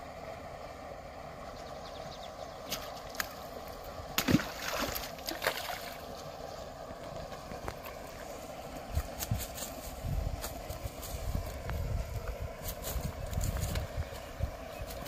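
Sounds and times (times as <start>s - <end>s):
fish splashing and thrashing: 2.7s - 6.2s.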